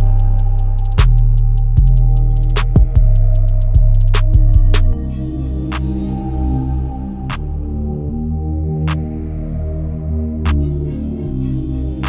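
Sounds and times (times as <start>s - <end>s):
hi-hat ticks: 0.0s - 5.0s
heavy bass line: 0.0s - 12.0s.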